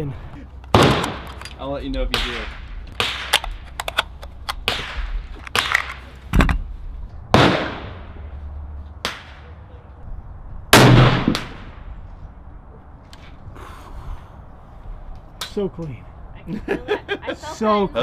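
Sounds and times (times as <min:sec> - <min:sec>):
gunshots echoing: 0:00.7 - 0:01.4, 0:02.1 - 0:03.6, 0:04.6 - 0:06.1, 0:07.3 - 0:08.2, 0:10.7 - 0:11.9.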